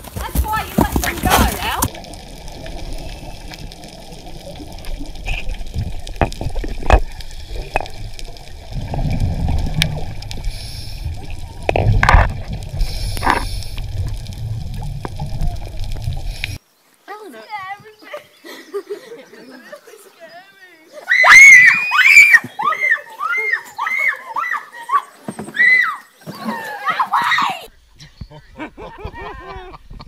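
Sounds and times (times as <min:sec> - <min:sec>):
underwater clicks: 0:01.1 - 0:16.6
scuba bubbles gurgling: 0:01.5 - 0:16.6
muffled underwater rumble: 0:01.8 - 0:16.6.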